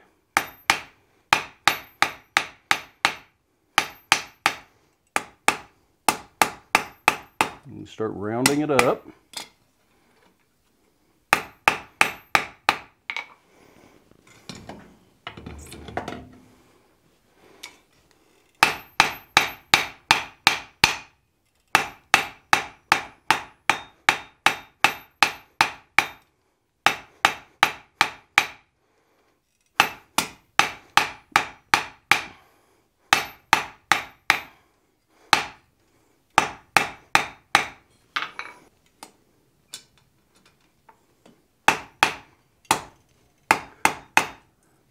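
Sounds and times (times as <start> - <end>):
hammer ringing on hot iron: 21.8 - 26.2.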